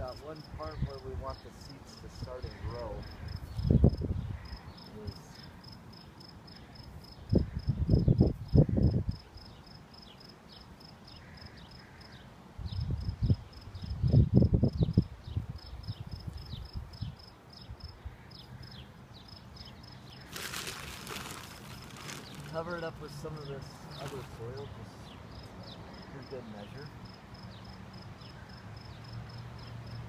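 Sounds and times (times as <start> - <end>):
insect chirping: 0.0 - 22.6, 23.2 - 30.0.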